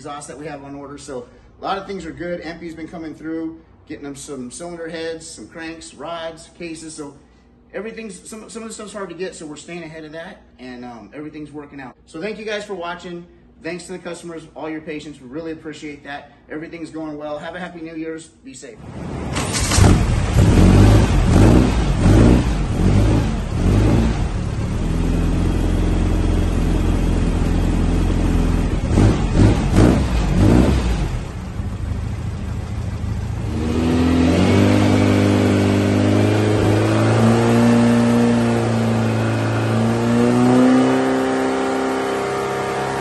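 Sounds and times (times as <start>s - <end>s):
engine revving: 18.8s - 43.0s.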